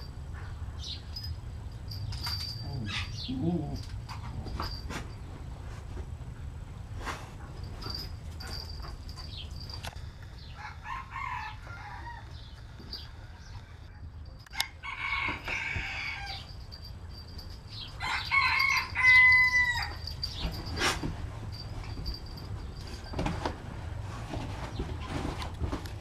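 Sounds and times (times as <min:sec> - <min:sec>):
dog whining: 0:02.4 - 0:05.1.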